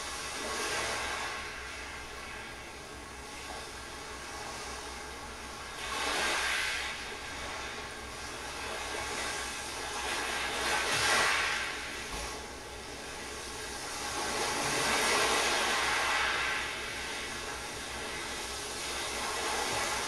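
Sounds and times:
sea waves washing in: 0.0 - 20.0.

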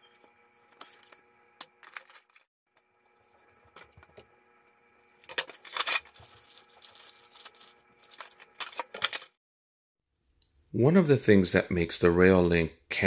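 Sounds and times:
plastic bag crinkling: 5.2 - 9.4.

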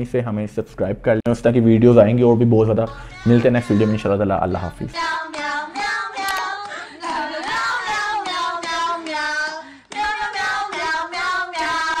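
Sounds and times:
high voice singing jingle: 2.9 - 6.5.

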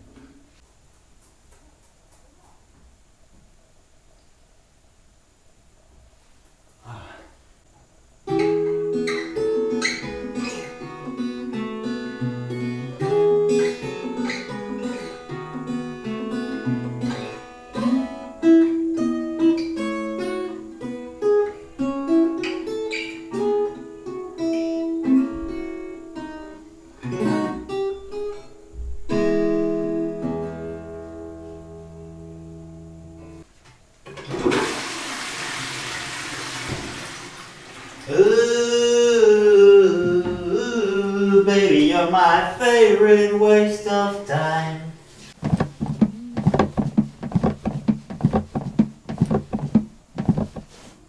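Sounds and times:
acoustic guitar playing: 8.3 - 33.4, 38.1 - 50.9.

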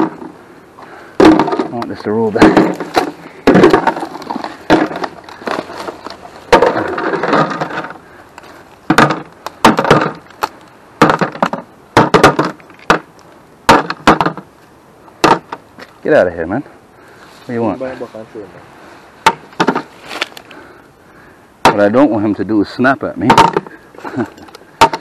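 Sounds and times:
rustling undergrowth: 0.0 - 25.0
twigs snapping underfoot: 10.2 - 10.8, 20.0 - 20.6.

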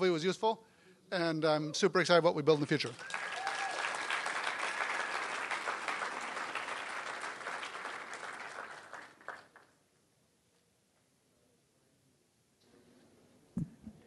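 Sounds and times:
audience applauding: 2.6 - 9.7.

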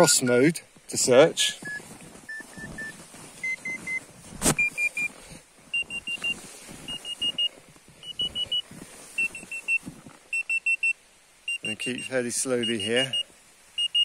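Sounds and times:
short high beeps: 1.6 - 4.0, 4.6 - 5.1, 5.7 - 8.6, 9.2 - 13.2, 13.8 - 14.0.

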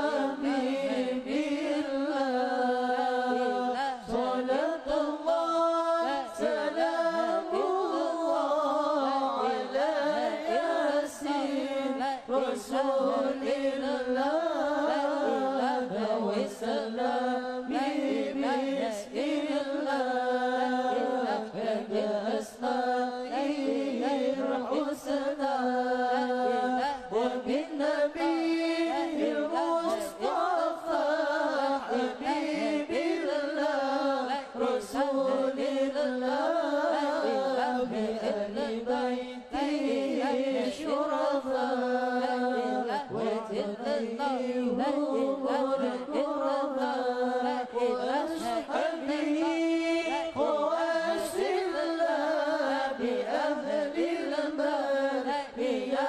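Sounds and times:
devotional song chanted: 0.0 - 56.0.

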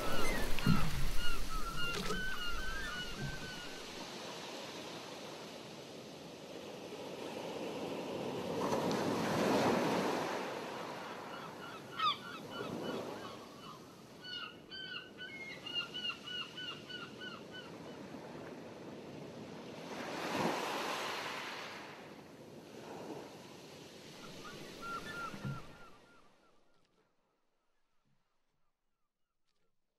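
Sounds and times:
short repeated bird calls: 0.0 - 4.0, 24.2 - 27.0
sea waves washing in: 0.0 - 11.6, 18.0 - 26.0.

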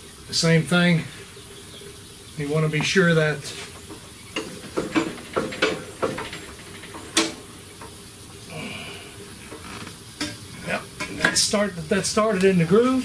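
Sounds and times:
metallic clicks and knocks: 3.9 - 8.0.

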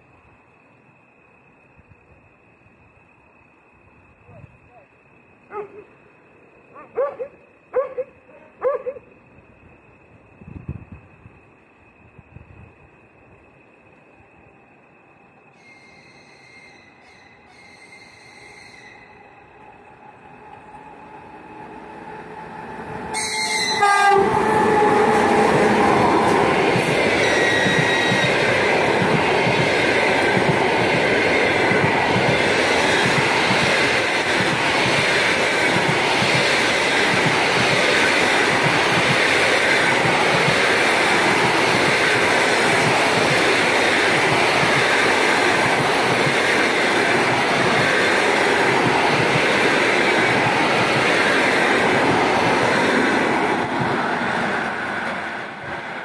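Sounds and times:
train wheels on rails: 9.2 - 56.0
locomotive horn: 23.1 - 25.8.

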